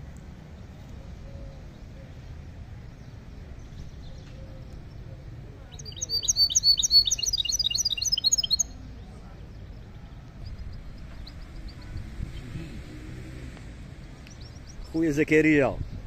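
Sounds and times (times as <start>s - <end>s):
finch singing rapid high notes: 5.7s - 8.7s.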